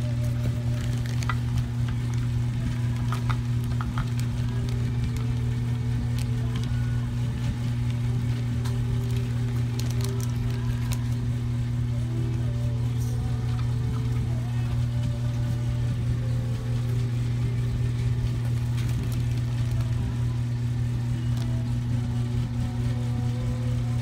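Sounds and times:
plastic bag crinkling: 0.0 - 11.3, 18.0 - 22.6
low hum: 0.0 - 24.0.

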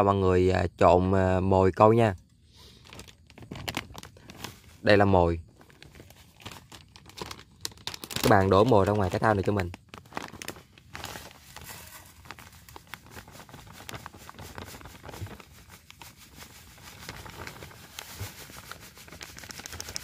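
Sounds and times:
plastic bag crinkling: 2.7 - 20.0
grains pouring into metal basin: 11.2 - 15.0.

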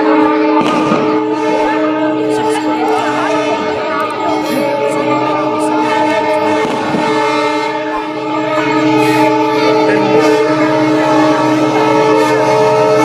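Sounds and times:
large crowd noise: 0.0 - 13.0
train horn long note: 0.0 - 13.0.

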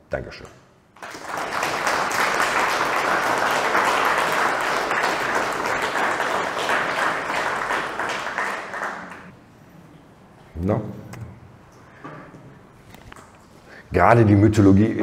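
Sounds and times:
audience applauding: 1.0 - 9.4.

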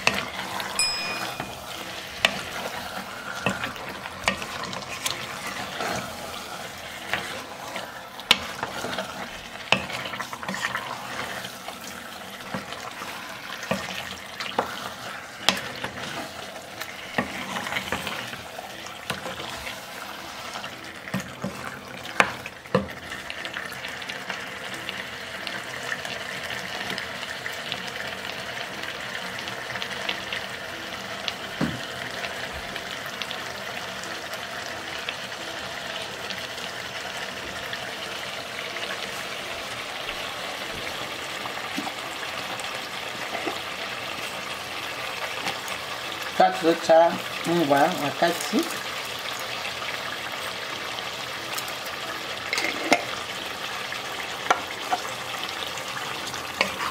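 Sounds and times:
wooden spoon scraping pot: 0.0 - 0.8, 1.4 - 23.2, 52.5 - 53.2, 56.0 - 56.9
sauce sizzling: 0.0 - 56.9.

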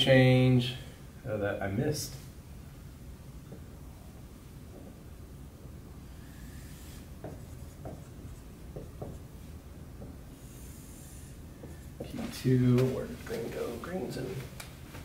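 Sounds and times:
marker squeaking on whiteboard: 6.2 - 12.2.

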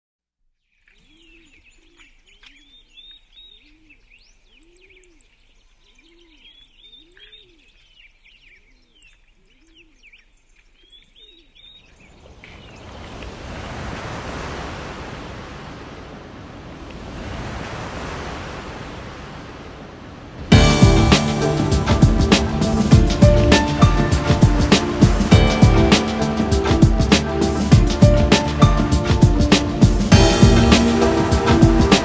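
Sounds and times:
small birds chirping: 0.5 - 13.2
broad rushing noise: 12.2 - 32.0.

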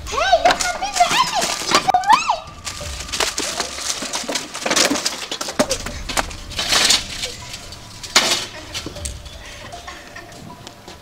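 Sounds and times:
bottles and cans clattering: 0.4 - 10.5
metal table tipping over: 3.2 - 9.3.

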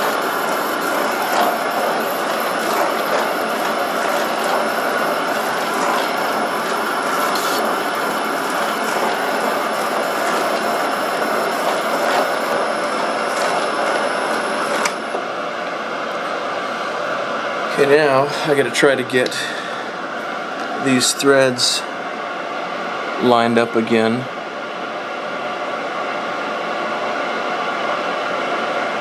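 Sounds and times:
metal lathe clatter: 0.0 - 12.5
thin high whine: 0.0 - 29.0.

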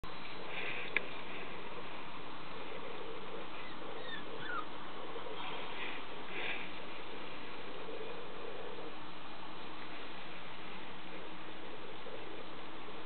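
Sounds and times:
steady background hiss: 0.0 - 13.0
puppy whimpering: 3.5 - 4.8.

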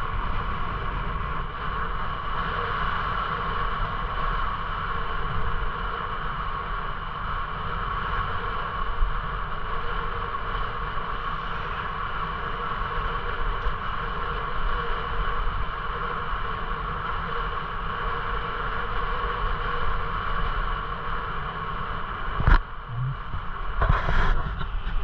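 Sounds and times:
bicycle rolling on pavement: 0.0 - 22.4
wind buffeting microphone: 22.2 - 25.0.

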